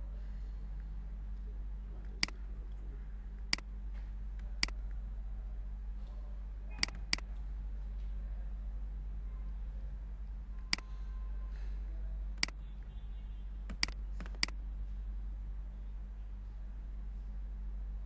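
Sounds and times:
steady low hum: 0.0 - 18.0
computer mouse button clicking: 13.7 - 14.5.

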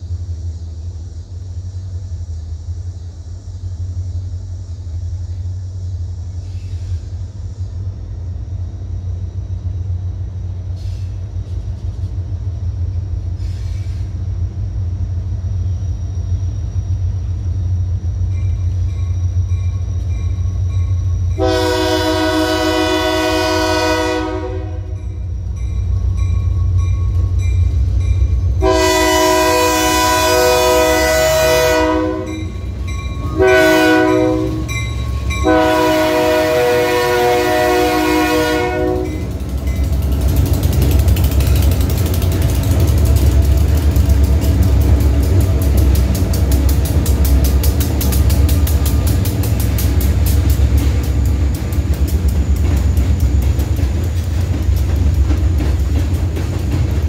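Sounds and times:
diesel locomotive engine rumble: 0.0 - 57.0
locomotive air horn: 21.4 - 25.1, 28.6 - 32.6, 33.2 - 39.4.

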